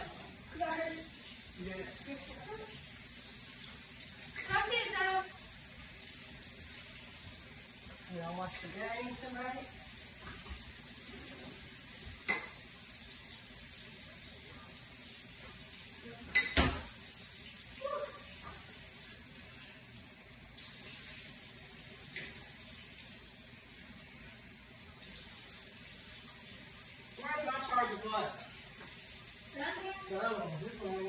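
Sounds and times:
dishes clinking and knocking: 12.2 - 12.6, 16.3 - 16.9.

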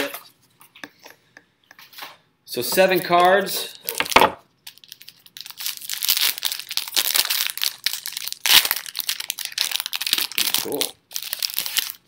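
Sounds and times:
wrapper tearing and crinkling: 3.2 - 12.0.

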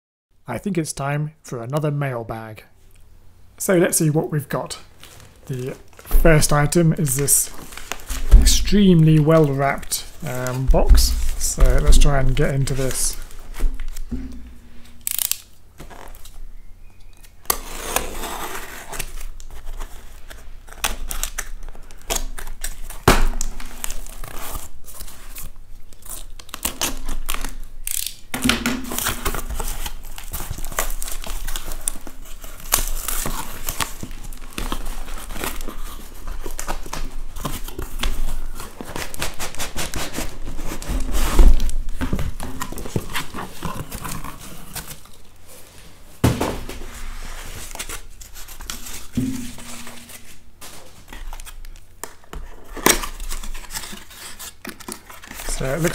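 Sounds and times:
plastic wrap crinkling: 4.9 - 17.4, 18.8 - 46.1, 46.7 - 55.9
cardboard scraping: 5.0 - 16.2, 28.9 - 51.6
heavy thump: 8.3 - 8.7, 14.1 - 14.9, 49.2 - 50.1.

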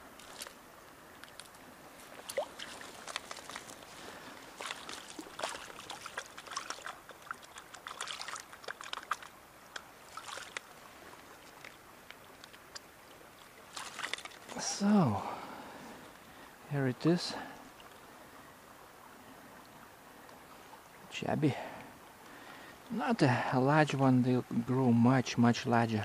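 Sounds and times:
small water splashes: 0.0 - 15.4.

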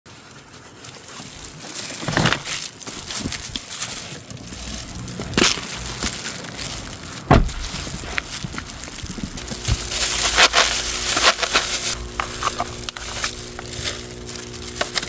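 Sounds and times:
plastic bags rustling: 0.1 - 15.0
heavy thump: 7.3 - 8.1.

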